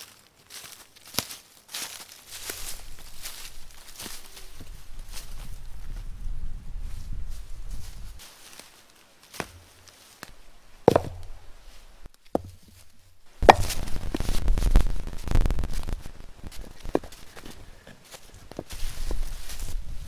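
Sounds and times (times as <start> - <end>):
footsteps in dry leaves: 0.0 - 20.0
stone knocking on stone: 10.9 - 11.4, 12.4 - 12.6, 13.4 - 13.8
large rock scraping and thudding: 10.9 - 11.5, 12.3 - 12.6, 13.4 - 14.5.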